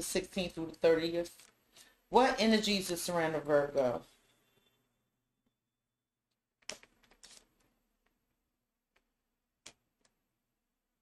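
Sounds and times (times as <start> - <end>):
cards snapping and sliding: 6.6 - 7.6.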